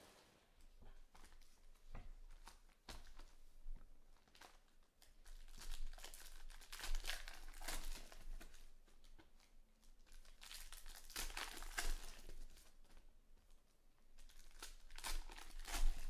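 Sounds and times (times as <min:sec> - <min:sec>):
foil wrapper tearing and crinkling: 0:04.3 - 0:08.6, 0:10.1 - 0:12.7, 0:14.2 - 0:16.0.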